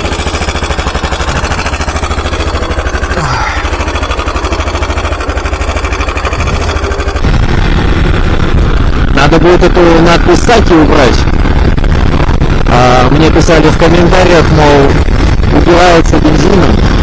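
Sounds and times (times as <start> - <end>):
motorcycle engine running: 0.0 - 17.0
wind and road noise: 0.0 - 17.0.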